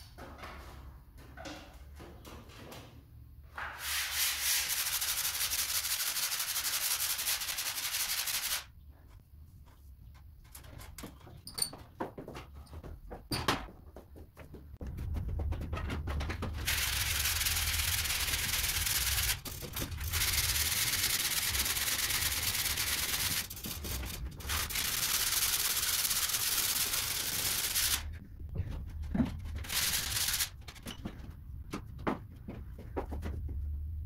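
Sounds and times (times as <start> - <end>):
sandpaper rubbing on ceiling: 3.8 - 8.7, 16.7 - 28.1, 29.6 - 30.5.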